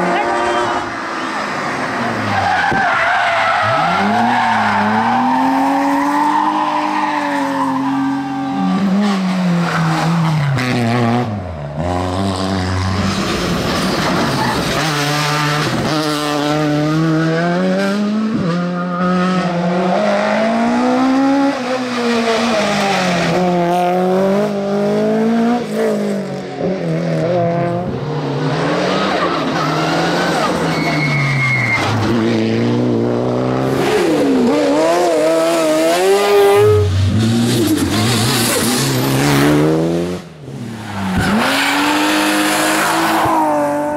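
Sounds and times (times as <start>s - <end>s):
rally car engines revving: 0.0s - 43.9s
tyres squealing: 29.0s - 32.0s.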